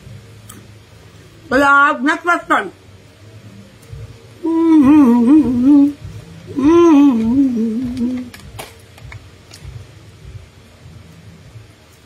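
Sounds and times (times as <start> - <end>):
woman humming a tune: 4.4 - 8.4.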